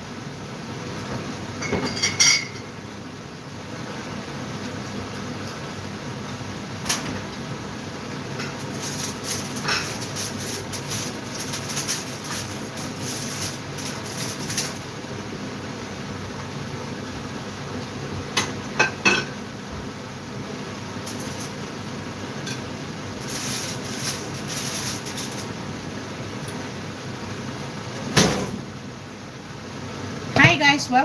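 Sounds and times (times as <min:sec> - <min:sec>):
extractor fan running: 0:02.5 - 0:31.0
kitchen items clattering: 0:08.4 - 0:14.8, 0:23.2 - 0:25.5.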